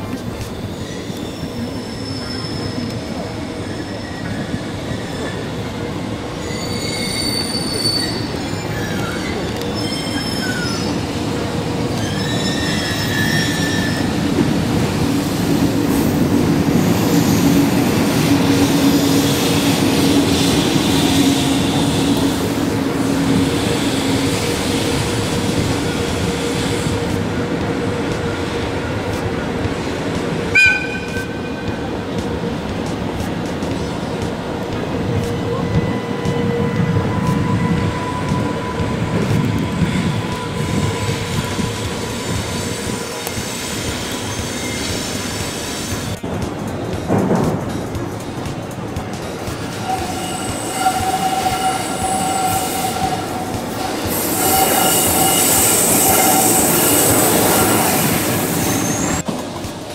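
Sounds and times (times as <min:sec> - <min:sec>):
train wheels squealing: 0:00.0 - 0:14.4, 0:15.2 - 0:27.2, 0:35.2 - 0:46.2, 0:49.5 - 0:59.3
loud high-pitched sound: 0:49.7 - 0:59.1.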